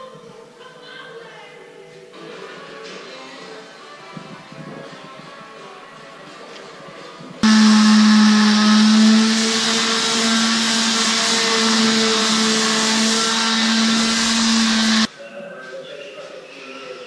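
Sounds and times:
electric sander humming and hissing: 7.4s - 15.1s.

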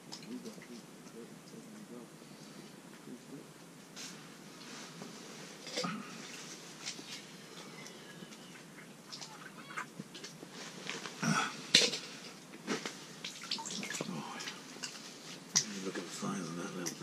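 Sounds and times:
rustling: 3.9s - 16.4s.

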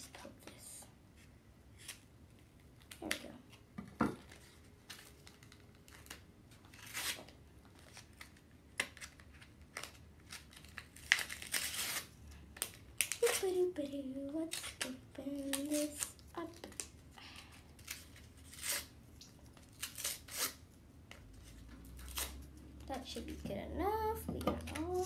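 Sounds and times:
plastic wrapper crinkling: 4.2s - 13.7s
scissors cutting plastic packaging: 7.9s - 13.7s, 14.3s - 16.9s, 17.8s - 18.9s, 19.5s - 20.6s, 21.9s - 22.5s, 24.4s - 25.0s.

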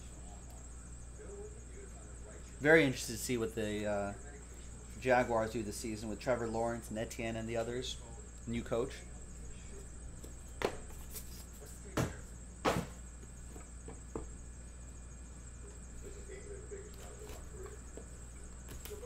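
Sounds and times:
steady low hum: 0.0s - 19.0s
cards handled on table: 10.2s - 11.8s.

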